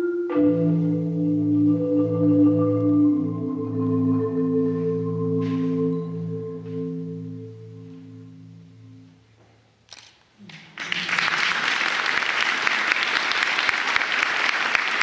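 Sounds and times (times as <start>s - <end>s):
low marimba notes: 0.0s - 9.2s
audience applauding: 10.5s - 15.0s.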